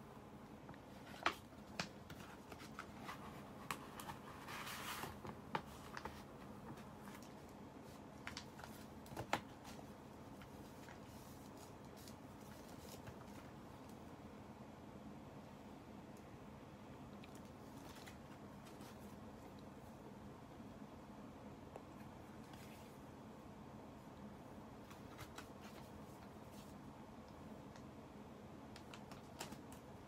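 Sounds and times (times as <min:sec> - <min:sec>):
paper rustling: 0:00.7 - 0:13.6, 0:17.6 - 0:19.5, 0:24.8 - 0:26.8
taps and clicks of paper: 0:28.7 - 0:29.8.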